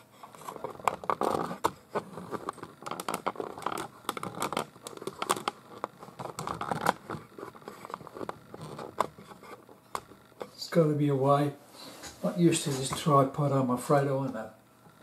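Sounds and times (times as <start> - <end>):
camera handling clicks and scrapes: 0.2 - 10.5.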